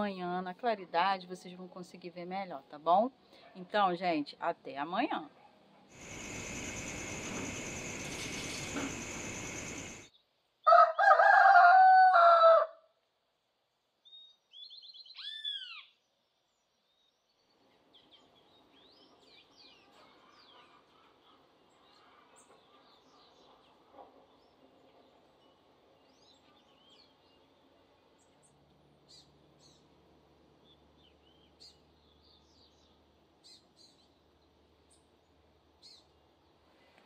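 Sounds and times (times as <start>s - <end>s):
low steady hush: 5.9s - 10.1s
bird call of arched whistles: 6.0s - 10.1s, 14.1s - 16.0s
faint birdsong chirps: 6.0s - 10.4s, 14.0s - 30.0s, 30.6s - 37.0s
rooster crowing: 10.7s - 12.8s.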